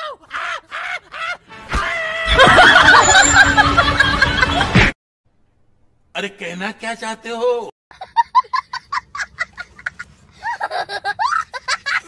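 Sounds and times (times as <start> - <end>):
crowd laughing and shrieking: 0.2 - 4.8.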